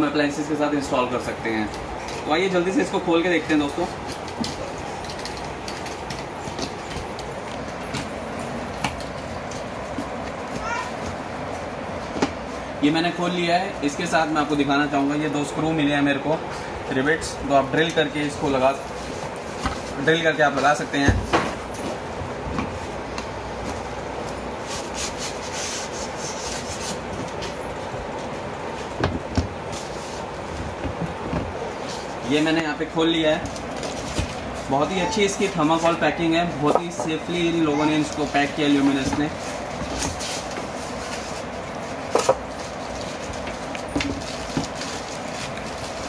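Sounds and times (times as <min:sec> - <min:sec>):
steady background hiss: 0:00.0 - 0:46.0
packing knocks and rustles: 0:03.4 - 0:11.3, 0:27.0 - 0:32.2, 0:33.3 - 0:34.7, 0:38.4 - 0:46.0
polystyrene scraping cardboard: 0:24.6 - 0:27.6, 0:38.2 - 0:46.0.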